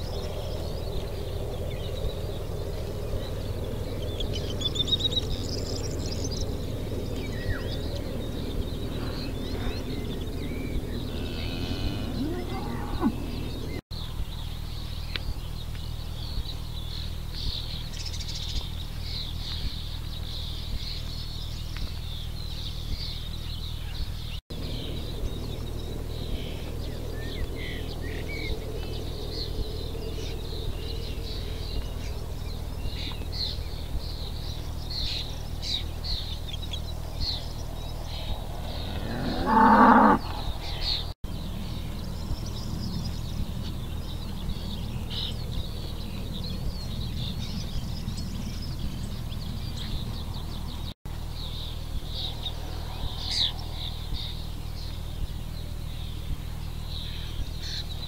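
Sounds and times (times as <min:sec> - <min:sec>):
birds chirping: 0:00.0 - 0:58.0
steady low hum: 0:00.0 - 0:58.0
cattle mooing: 0:11.1 - 0:13.6, 0:38.9 - 0:40.5.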